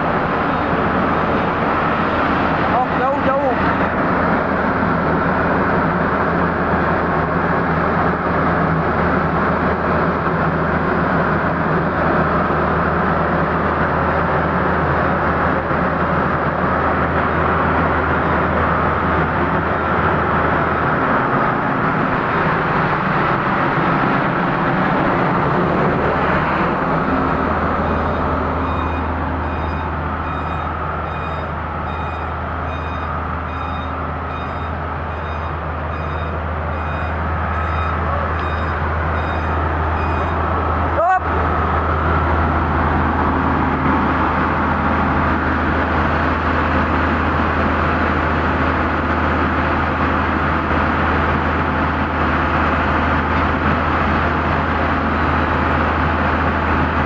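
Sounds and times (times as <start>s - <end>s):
diesel engine idling: 0.0s - 57.0s
reversing alarm beeping: 27.9s - 40.6s.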